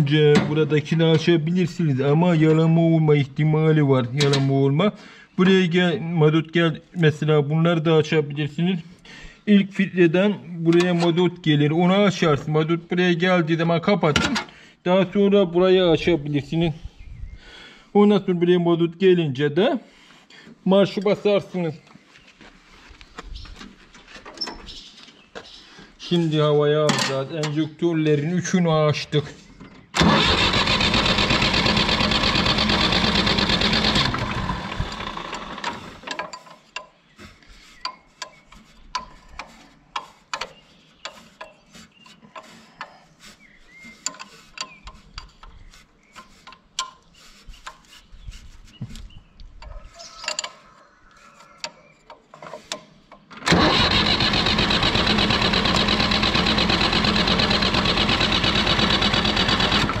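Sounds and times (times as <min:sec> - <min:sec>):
diesel engine cranking: 0:30.0 - 0:36.2, 0:53.4 - 1:00.0
light clicks and taps on fittings: 0:37.8 - 0:43.0, 0:44.0 - 0:47.9.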